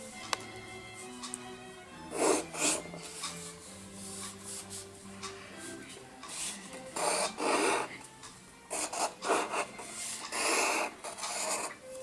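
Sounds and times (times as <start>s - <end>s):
pencil scratching on paper: 2.1s - 2.9s, 6.3s - 8.0s, 8.7s - 11.8s.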